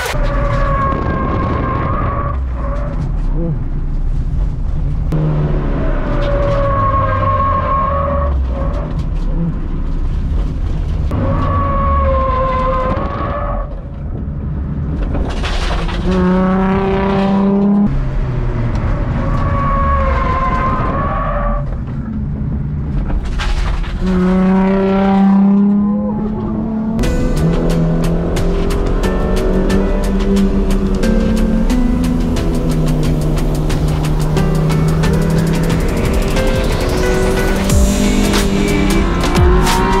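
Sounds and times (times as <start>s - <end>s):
road and wind noise: 0.0s - 40.0s
car engine running hard: 2.4s - 7.1s, 21.6s - 40.0s.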